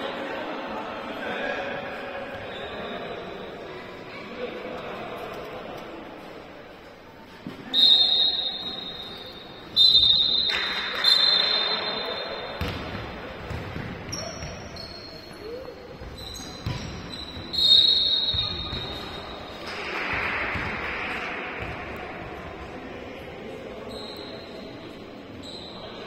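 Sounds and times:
crowd voices: 0:00.0 - 0:26.0
loud whistle blasts: 0:07.7 - 0:12.6, 0:17.1 - 0:19.2.

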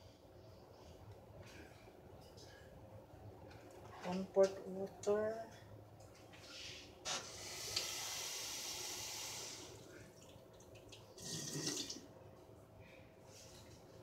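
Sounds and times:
kitchen tap running: 0:07.4 - 0:12.1.

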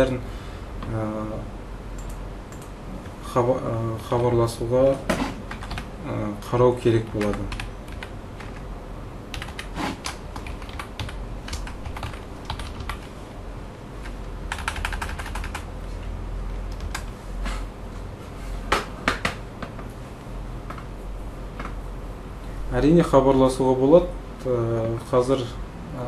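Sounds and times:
low steady hum: 0:00.0 - 0:26.0
typing on computer keyboard: 0:05.5 - 0:05.9, 0:07.1 - 0:08.6, 0:09.3 - 0:13.1, 0:14.0 - 0:15.7, 0:16.7 - 0:17.1.

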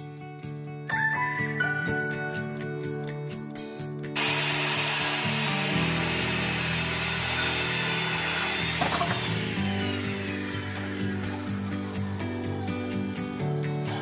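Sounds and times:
background music: 0:00.0 - 0:14.0
power tool running: 0:04.2 - 0:14.0.

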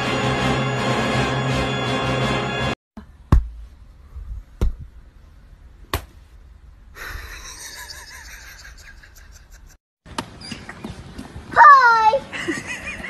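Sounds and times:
slaps on straw mat: 0:05.9 - 0:06.2.

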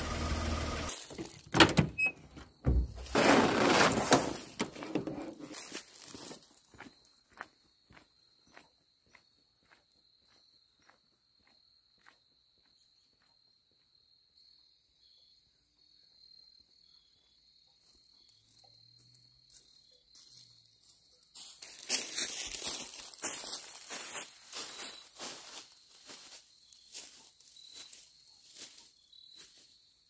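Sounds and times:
footsteps crunching dry leaves: 0:00.9 - 0:01.4, 0:02.9 - 0:06.8, 0:20.2 - 0:29.7.

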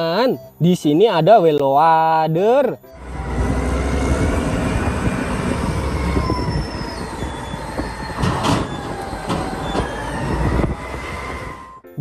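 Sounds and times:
high metallic squeals: 0:02.8 - 0:11.9
low diesel rumble: 0:02.9 - 0:11.8
sharp knocks: 0:08.2 - 0:10.0.

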